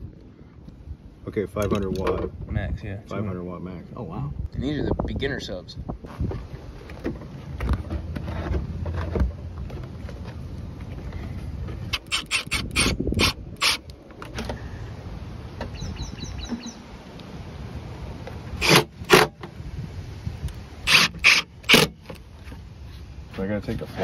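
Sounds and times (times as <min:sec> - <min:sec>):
cordless drill running: 0:11.9 - 0:13.8, 0:18.6 - 0:19.2, 0:20.8 - 0:21.9.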